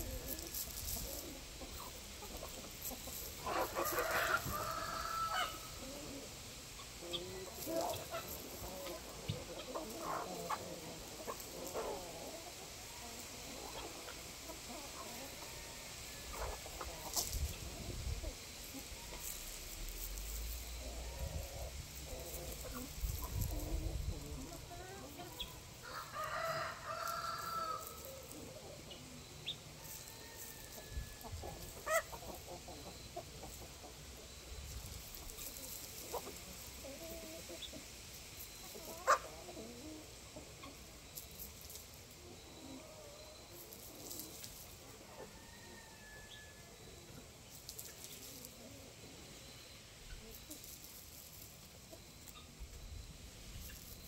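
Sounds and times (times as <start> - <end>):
chickens clucking: 0.0 - 54.0
rooster crowing: 3.5 - 5.8, 25.8 - 28.3, 29.8 - 32.0, 45.1 - 46.8.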